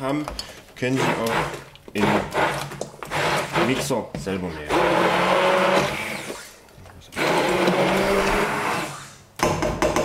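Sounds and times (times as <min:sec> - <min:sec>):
hand blender motor whining: 0:04.7 - 0:06.5, 0:07.2 - 0:08.9.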